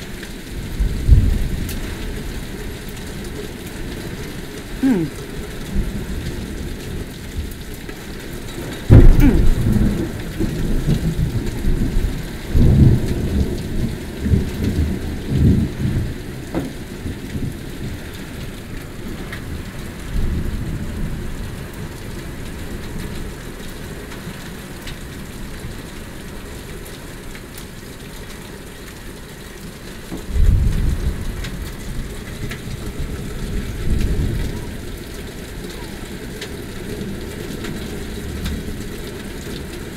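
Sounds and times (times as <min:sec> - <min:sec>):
steady rain falling: 0:00.0 - 0:39.9
thunder rumbling: 0:08.8 - 0:16.2.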